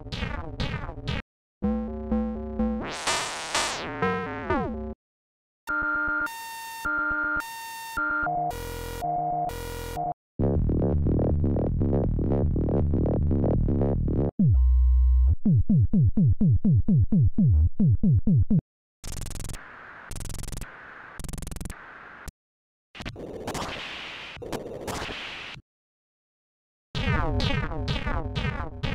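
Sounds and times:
synthesizer blips: 0.2 - 5.0, 27.0 - 28.9
noisy synth hits: 2.8 - 3.9.

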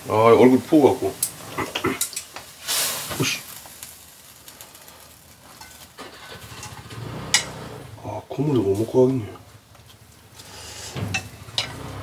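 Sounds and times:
hissing whoosh: 0.0 - 8.2.

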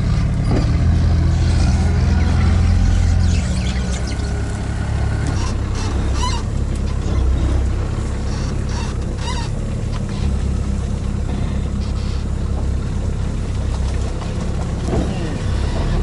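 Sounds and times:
vehicle engine running: 0.0 - 16.0
wavering honk-like calls: 8.1 - 10.4.

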